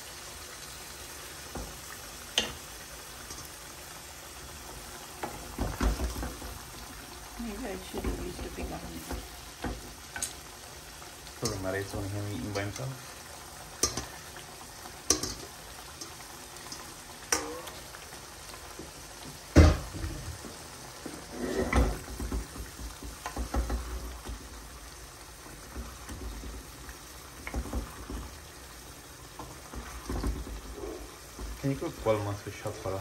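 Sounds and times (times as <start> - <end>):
spoon scraping and stirring in pot: 21.0 - 22.3.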